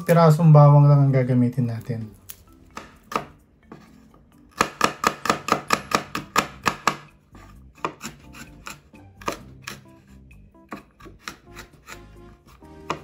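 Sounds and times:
knife chopping on wooden board: 0:02.6 - 0:13.0.

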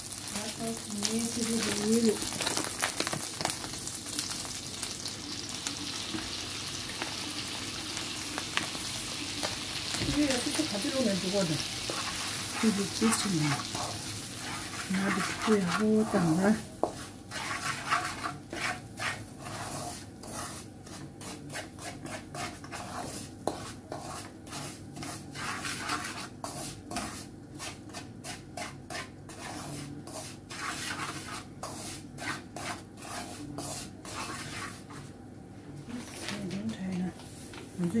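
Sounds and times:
wooden spatula scraping frying pan: 0:09.4 - 0:35.2.

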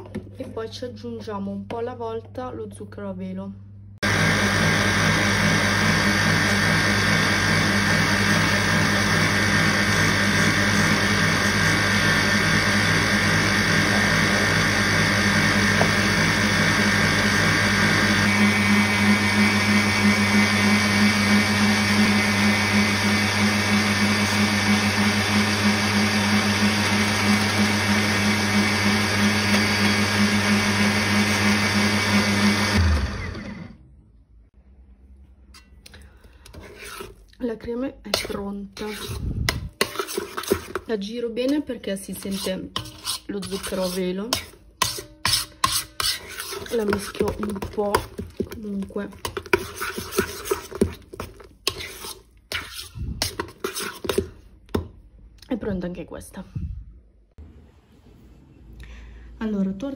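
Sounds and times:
stand mixer motor running: 0:04.0 - 0:33.8.

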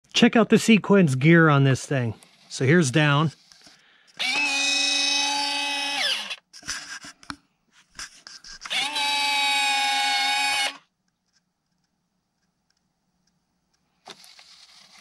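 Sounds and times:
landing gear motor whine: 0:04.2 - 0:06.4.

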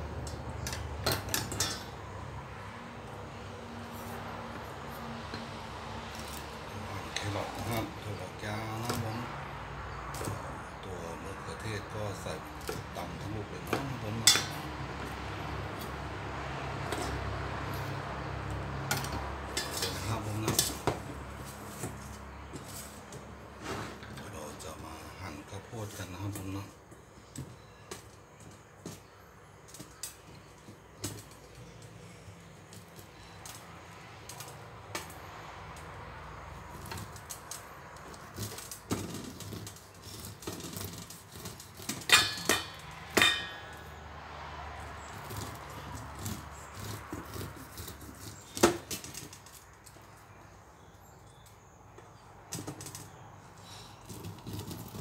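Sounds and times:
knife scraping corn cob: 0:45.0 - 0:49.8, 0:53.6 - 0:55.0.

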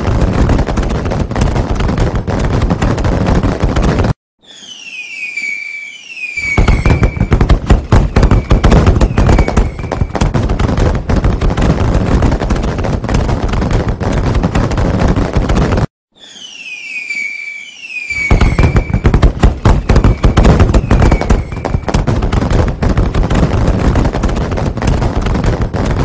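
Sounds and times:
crackling firework bangs: 0:00.0 - 0:26.0
firework whistles: 0:04.4 - 0:10.4, 0:16.1 - 0:22.1.

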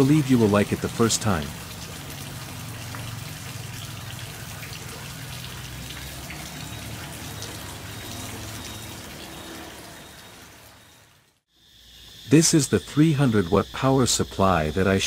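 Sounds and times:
falling water hiss: 0:00.0 - 0:10.9
faint water drips: 0:00.0 - 0:11.4.

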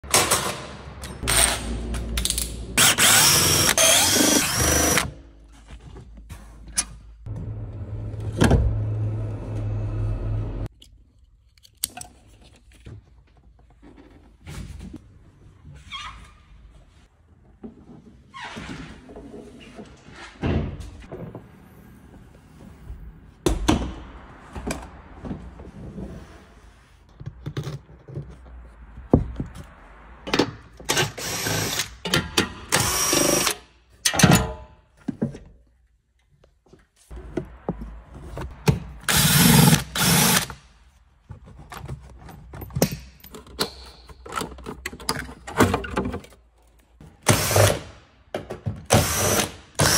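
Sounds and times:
cordless drill running: 0:02.8 - 0:05.0.

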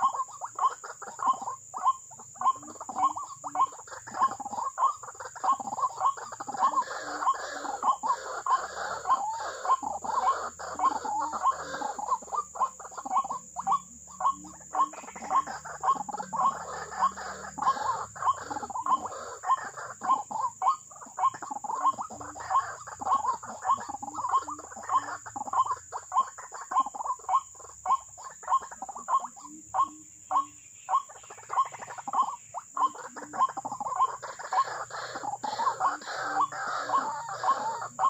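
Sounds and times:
bird calling repeatedly: 0:00.0 - 0:38.0.

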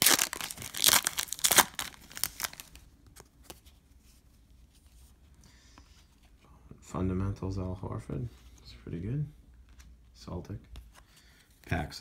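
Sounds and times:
foil wrapper tearing and crinkling: 0:00.0 - 0:02.8.

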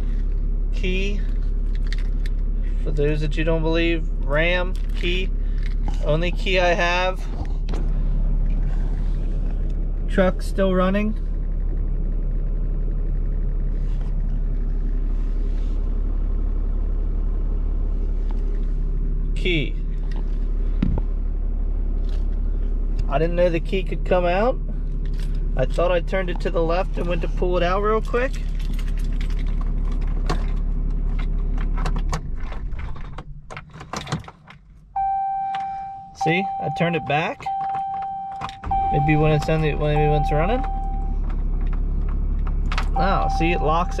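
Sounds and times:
keys jingling in ignition: 0:00.0 - 0:03.2, 0:04.2 - 0:07.4, 0:24.9 - 0:44.0
diesel engine idling: 0:00.0 - 0:33.5, 0:34.7 - 0:44.0.

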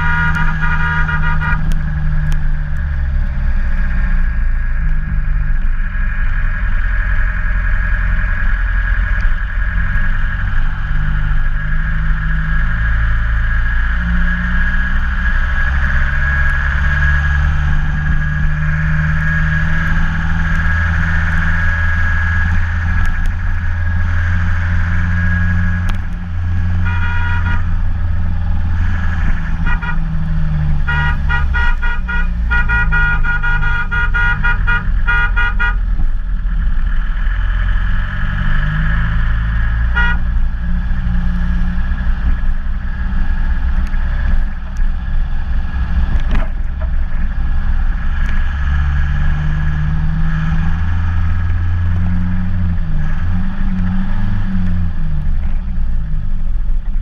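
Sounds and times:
car horn toots: 0:00.0 - 0:02.0, 0:26.7 - 0:28.0, 0:28.7 - 0:36.0, 0:39.8 - 0:40.6
car engine running: 0:00.0 - 0:57.0.

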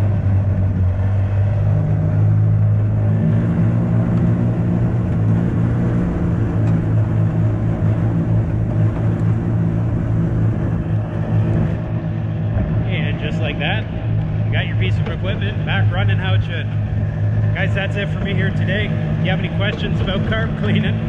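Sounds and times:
two-stroke engine running: 0:00.0 - 0:21.0.

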